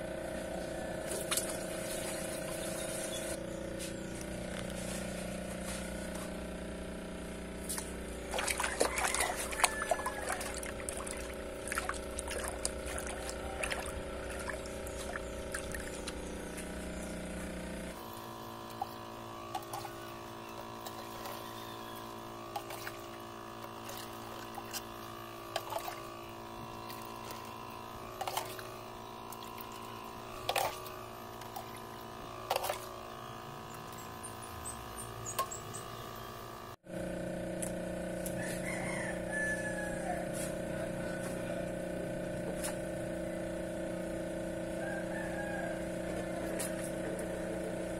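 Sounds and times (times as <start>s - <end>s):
steady hum: 0.0s - 47.9s
water sloshing in bucket: 1.1s - 2.8s, 7.6s - 16.7s, 18.7s - 20.0s, 22.5s - 33.0s.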